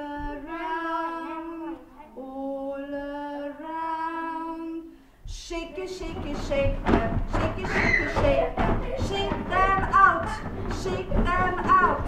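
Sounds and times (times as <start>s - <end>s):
woman singing children's song: 0.0s - 12.0s
noisy commotion: 5.8s - 12.0s.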